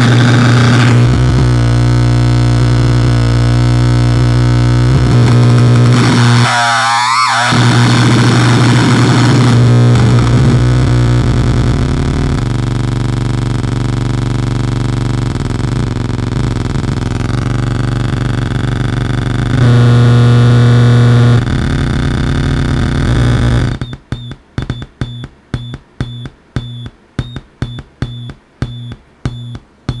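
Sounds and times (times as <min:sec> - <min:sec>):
distorted electronic drone: 0:00.0 - 0:30.0
pulsing electronic beep: 0:23.8 - 0:30.0.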